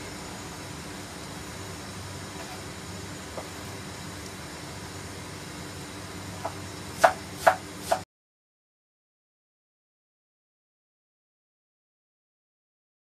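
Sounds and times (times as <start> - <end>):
low hiss: 0.0 - 8.0.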